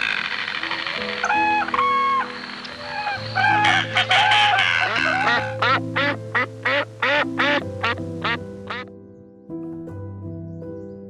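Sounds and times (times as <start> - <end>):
background music: 0.2 - 11.0
duck quacking: 2.9 - 8.9.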